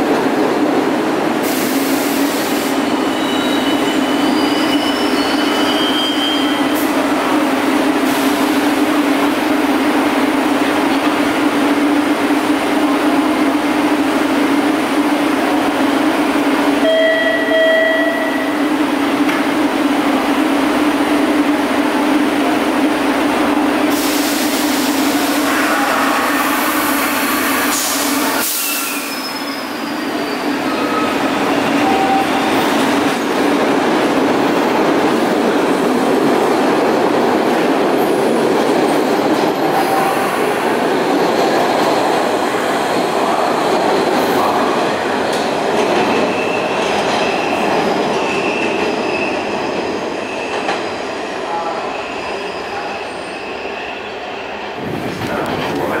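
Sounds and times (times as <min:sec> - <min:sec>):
rail noise: 0:00.0 - 0:56.0
high wheel squeals: 0:02.7 - 0:06.8, 0:28.3 - 0:32.7, 0:51.7 - 0:54.6.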